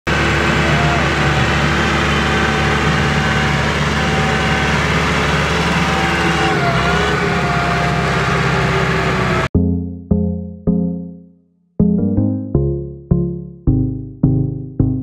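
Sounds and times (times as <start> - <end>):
diesel engine running: 0.1 - 9.5.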